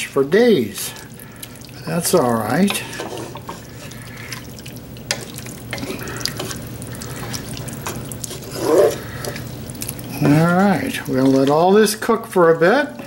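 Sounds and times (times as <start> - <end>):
spoon stirring wet curry: 0.6 - 13.0.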